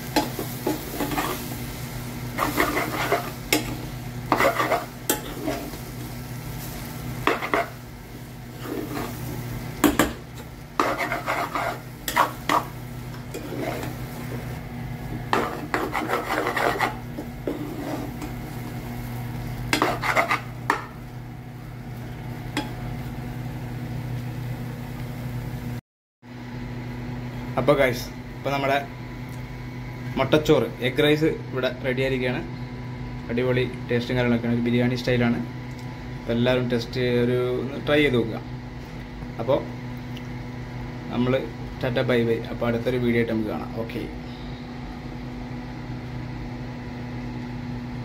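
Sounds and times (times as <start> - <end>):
steady low hum: 0.0 - 48.0
spoon scraping a steel pan: 2.4 - 5.8, 10.8 - 12.7, 13.3 - 14.0, 15.3 - 18.3, 19.7 - 20.8.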